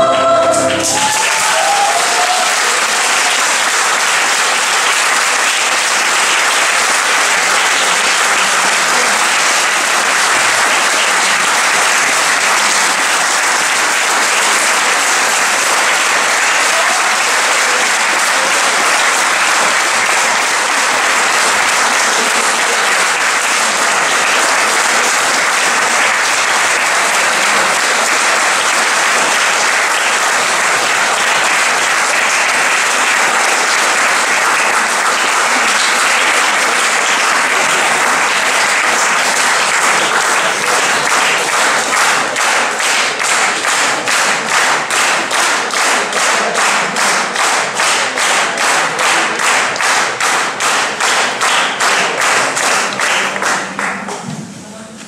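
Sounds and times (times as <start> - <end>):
audience applauding: 0.0 - 54.3.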